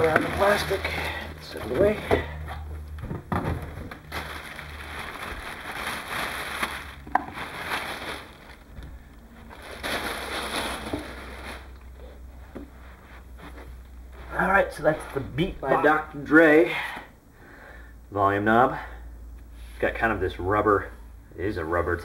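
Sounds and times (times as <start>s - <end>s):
plastic packaging crinkling: 0.0s - 12.2s.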